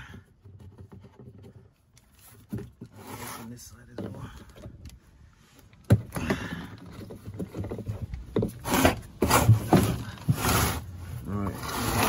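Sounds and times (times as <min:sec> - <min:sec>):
plastic cap rubbing and scraping: 0:00.2 - 0:03.8, 0:06.7 - 0:12.0.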